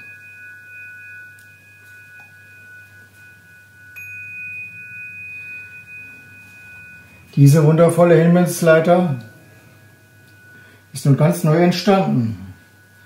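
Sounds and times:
mallet striking crystal bar: 0.0 - 11.7
crystal bars ringing: 0.0 - 13.0.

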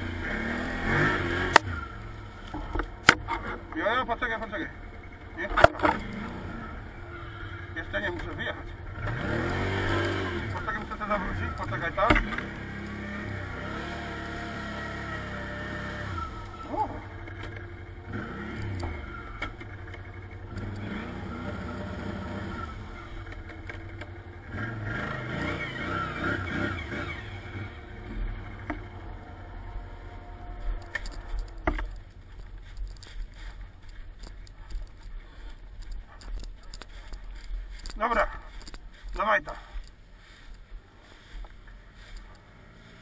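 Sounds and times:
quad bike engine revving: 0.0 - 43.0
knocks from bumpy ride: 11.6 - 12.6.

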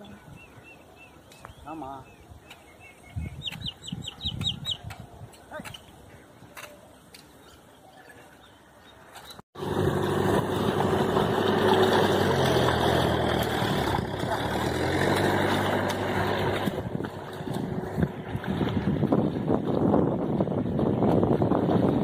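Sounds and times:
faint outdoor background: 0.0 - 21.2
steady engine hum: 9.6 - 22.0.

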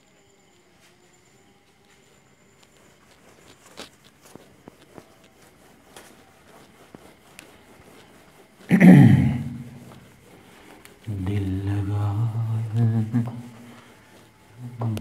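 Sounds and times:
duster rubbing on whiteboard: 2.6 - 15.0.

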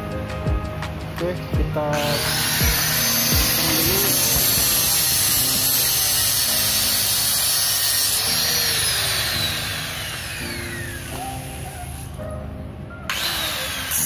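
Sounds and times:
angle grinder cutting steel: 1.9 - 12.2, 13.1 - 14.0.

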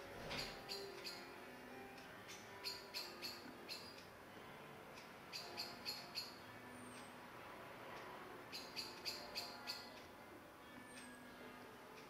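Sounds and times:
small bird calling: 0.2 - 1.3, 2.3 - 4.0, 5.3 - 6.4, 8.5 - 10.0.

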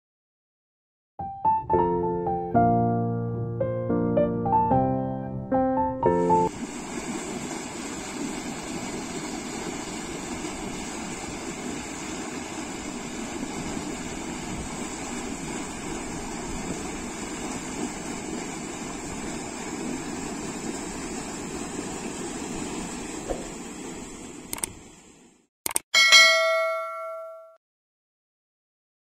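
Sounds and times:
water rushing along a canal: 6.2 - 24.7.

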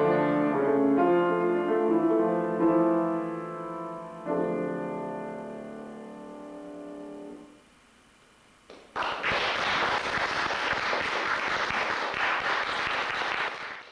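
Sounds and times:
piano chord: 0.0 - 7.6
audience applause: 8.7 - 13.9.

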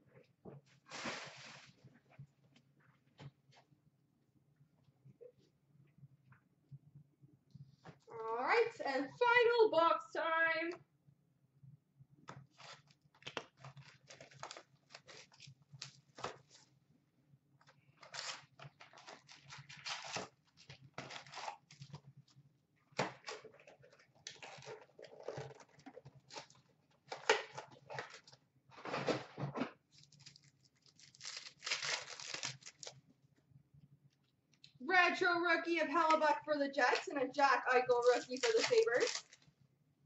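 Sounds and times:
cardboard and wrappers ripping: 12.5 - 16.6, 18.0 - 22.0, 29.9 - 33.0, 38.0 - 39.4.

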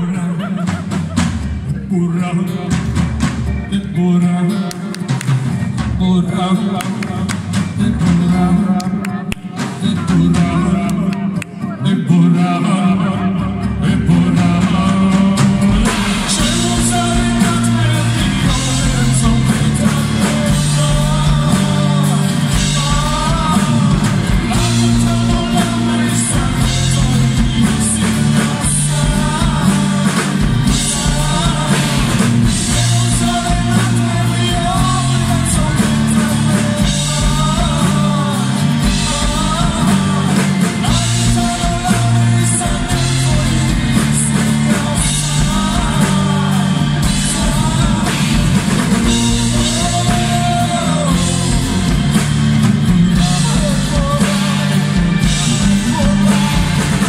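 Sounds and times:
drum kit: 0.0 - 57.0
person singing: 0.0 - 57.0
acoustic bass guitar: 11.8 - 57.0.

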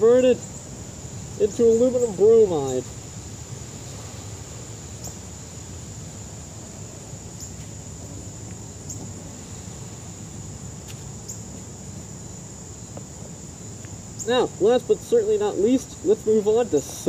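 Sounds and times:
insects trilling: 0.0 - 17.0.

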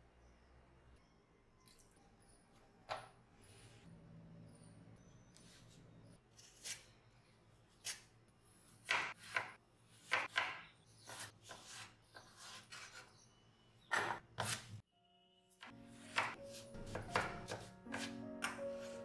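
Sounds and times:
knife chopping on wooden board: 8.8 - 13.0, 16.0 - 19.0.

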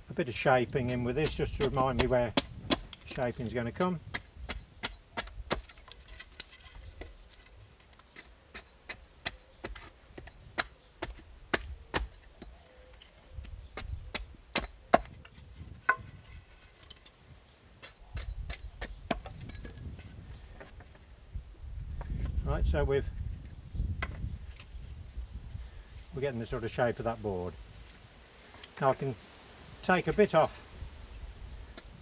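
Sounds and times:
axe chopping wood: 0.8 - 3.2, 3.8 - 5.9, 8.6 - 12.5, 13.8 - 15.2, 18.2 - 19.6.

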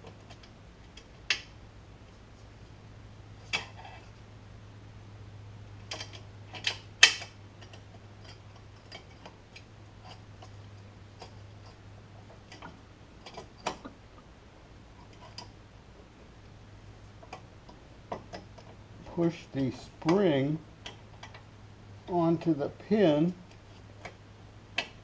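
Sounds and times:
faint steady hum: 0.0 - 25.0
small metallic clicks and taps: 5.8 - 14.0, 17.2 - 19.2, 20.8 - 21.5.

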